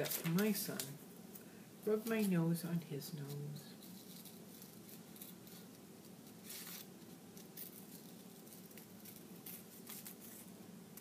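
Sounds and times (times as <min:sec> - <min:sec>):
low steady hum: 0:00.0 - 0:11.0
paper scratching and rustling: 0:03.2 - 0:10.6.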